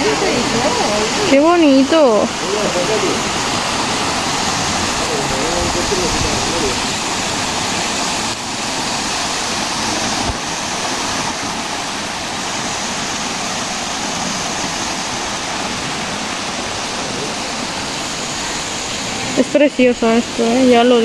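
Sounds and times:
river water rushing over weir: 0:00.0 - 0:21.0.

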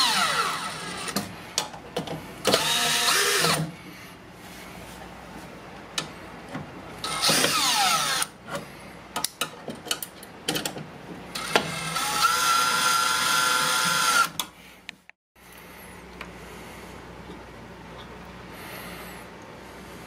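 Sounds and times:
cordless drill driving screws: 0:02.4 - 0:03.6, 0:07.0 - 0:08.3, 0:11.4 - 0:14.4.

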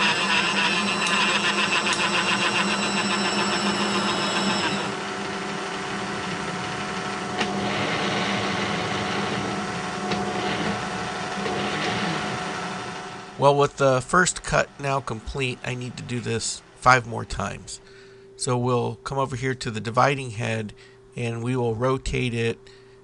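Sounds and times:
milling machine hum: 0:00.0 - 0:16.8.

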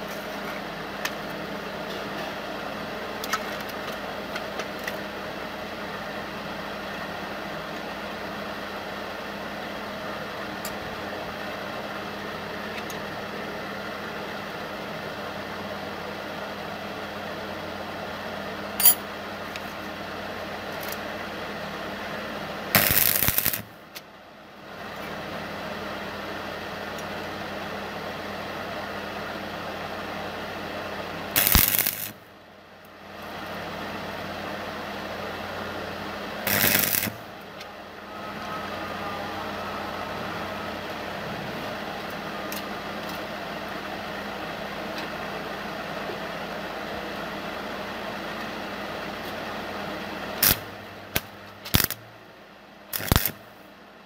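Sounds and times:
welding arc crackling: 0:22.7 - 0:23.8, 0:31.3 - 0:32.3, 0:36.3 - 0:37.5, 0:50.4 - 0:52.1, 0:52.9 - 0:53.5
low hum: 0:35.2 - 0:43.4.

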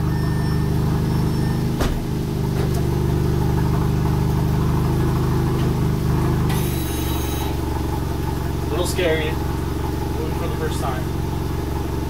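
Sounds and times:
car engine idling: 0:00.0 - 0:12.0
car door thudding shut: 0:01.7 - 0:03.0.

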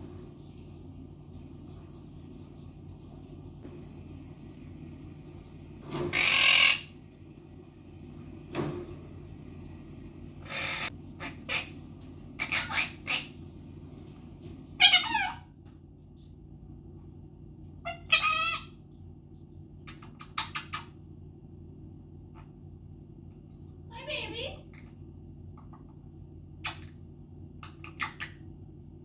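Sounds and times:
parrot squawking and chirping: 0:06.1 - 0:06.9, 0:10.4 - 0:11.8, 0:12.4 - 0:13.4, 0:14.8 - 0:15.5, 0:17.8 - 0:18.8, 0:19.9 - 0:20.9, 0:27.6 - 0:28.4
parrot warbling calls: 0:06.1 - 0:06.9, 0:10.4 - 0:11.8, 0:12.4 - 0:13.4, 0:14.8 - 0:15.5, 0:17.8 - 0:18.8.

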